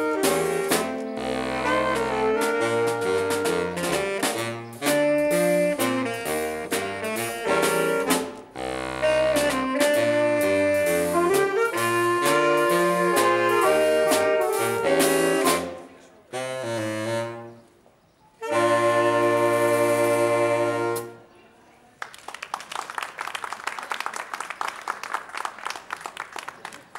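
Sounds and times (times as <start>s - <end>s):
saxophone ensemble playing: 0.0s - 17.8s, 18.4s - 21.3s
audience applause: 22.0s - 26.9s.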